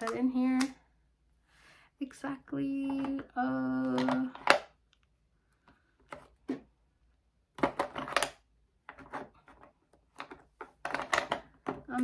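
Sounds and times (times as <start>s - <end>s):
small containers clicking and clattering: 2.8s - 5.1s, 7.5s - 12.0s.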